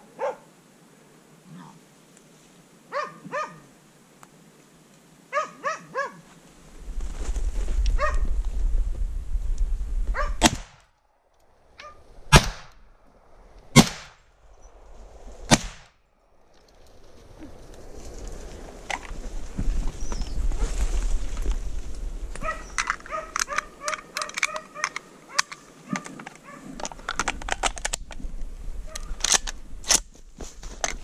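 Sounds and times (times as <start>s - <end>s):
dog barking: 0.2s - 0.5s, 2.9s - 3.6s, 5.3s - 6.2s, 8.0s - 8.2s, 10.2s - 10.4s, 22.4s - 26.7s
low rumble: 6.6s - 10.8s
loud rifle shots: 10.4s - 10.8s, 12.3s - 12.7s, 13.7s - 14.2s, 15.5s - 15.9s.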